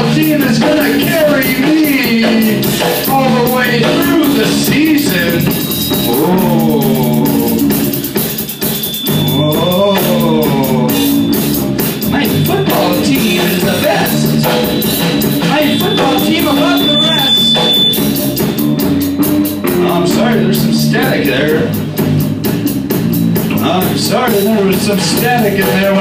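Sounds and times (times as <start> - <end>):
drum kit playing: 0.0 - 26.0
electric bass: 0.0 - 26.0
sliding wavering melody: 5.2 - 11.9, 12.8 - 19.3.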